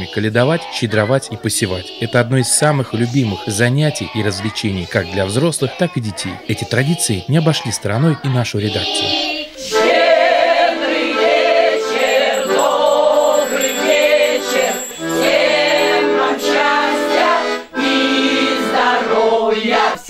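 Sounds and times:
women and children singing: 0:00.0 - 0:20.0
piano accordion: 0:09.5 - 0:19.7.

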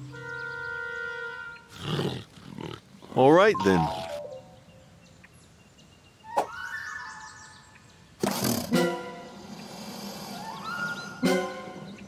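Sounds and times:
light background music: 0:08.3 - 0:12.0.

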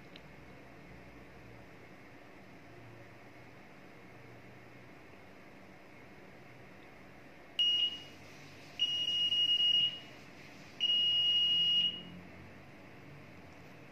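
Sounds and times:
electronic clock buzzer beeping: 0:08.8 - 0:10.1.

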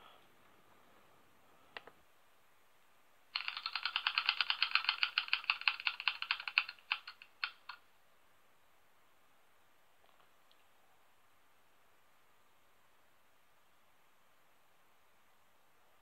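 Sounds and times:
spinning wheel ticking: 0:03.4 - 0:07.8.

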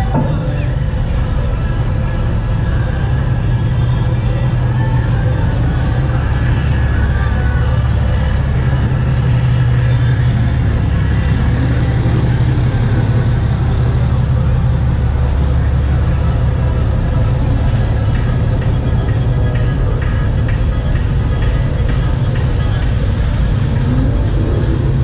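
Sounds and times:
trucks rumbling past: 0:00.0 - 0:25.0.

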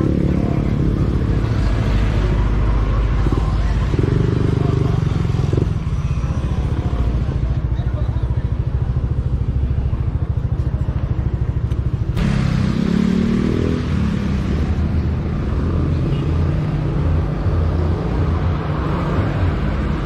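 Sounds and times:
road noise: 0:00.0 - 0:20.0
vehicle engine: 0:00.0 - 0:20.0.

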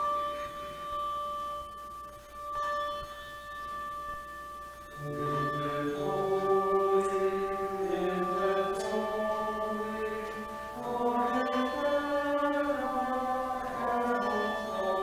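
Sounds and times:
choir singing held notes: 0:04.9 - 0:15.0.

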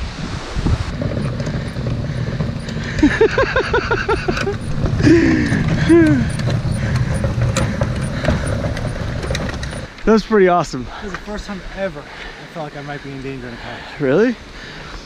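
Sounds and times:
strong wind on microphone: 0:00.0 - 0:02.7.

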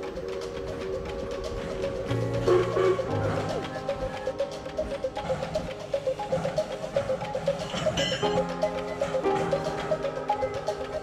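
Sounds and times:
held chords: 0:00.0 - 0:11.0.

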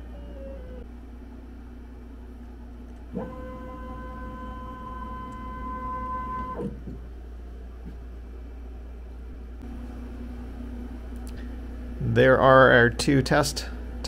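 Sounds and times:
steady low hum: 0:00.0 - 0:14.0
stepper motors whining: 0:03.1 - 0:06.8.

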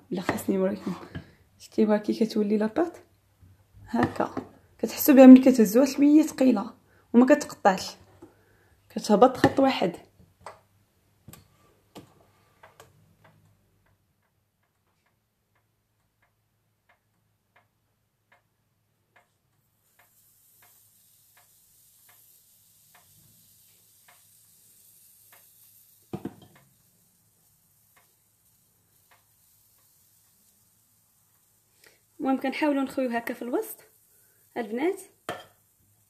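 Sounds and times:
faint hiss: 0:19.6 - 0:36.0.

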